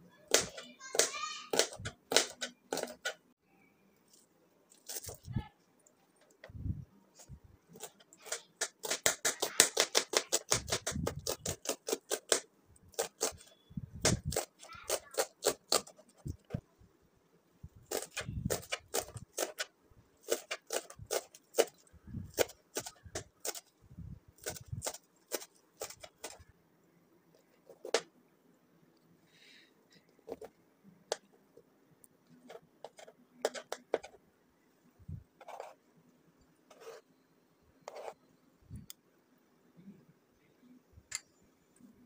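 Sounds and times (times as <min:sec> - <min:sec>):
knife chopping on plastic board: 0:00.3 - 0:03.2, 0:07.9 - 0:12.4.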